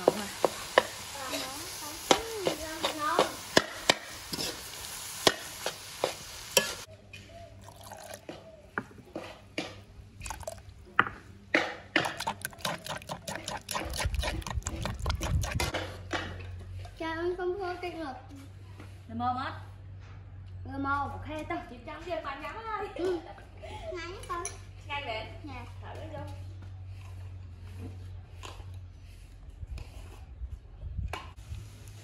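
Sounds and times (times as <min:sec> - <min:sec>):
food sizzling: 0:00.0 - 0:06.9
metal spatula scraping a wok: 0:00.0 - 0:06.9, 0:12.2 - 0:15.8
spoon scraping in a wooden mortar: 0:11.9 - 0:15.9.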